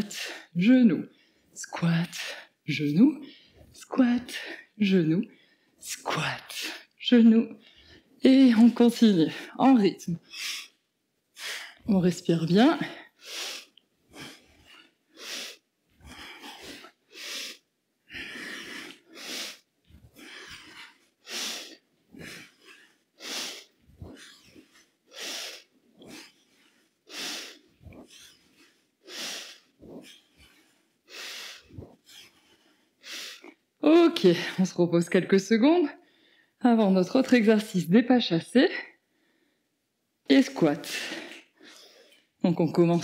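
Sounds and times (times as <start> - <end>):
woman breathing heavily: 0.1 - 1.6, 3.2 - 5.8, 7.6 - 8.2, 10.2 - 12.0, 12.6 - 33.6, 36.0 - 36.6, 38.8 - 39.7.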